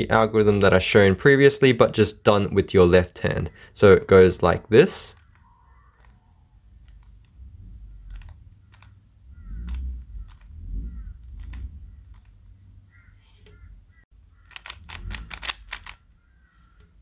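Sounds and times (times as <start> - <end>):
dull low thumps: 7.3 - 12.7
plastic cube clicks: 8.1 - 9.0, 14.4 - 16.0.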